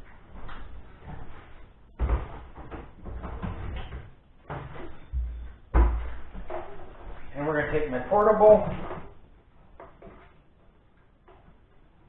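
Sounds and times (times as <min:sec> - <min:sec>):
knocks and thumps of handling: 0:00.3 - 0:07.3.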